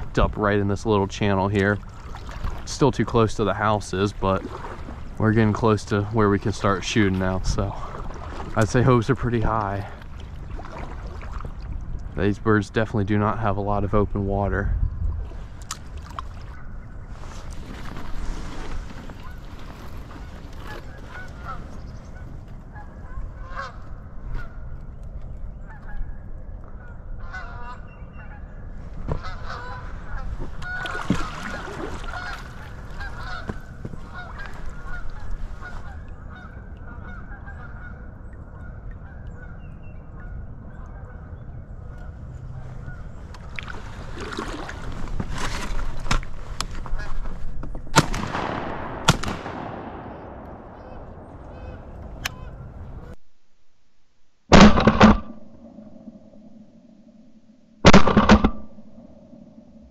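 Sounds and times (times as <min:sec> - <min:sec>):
geese honking: 0:19.2 - 0:24.7, 0:26.8 - 0:43.3, 0:49.1 - 0:53.2
sharp bang: 0:48.0 - 0:52.3, 0:54.5 - 0:56.4, 0:57.8 - 0:59.4.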